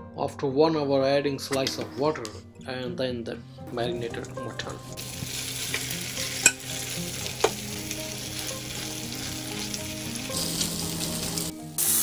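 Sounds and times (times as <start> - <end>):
meat sizzling in oil: 5.0 - 12.0.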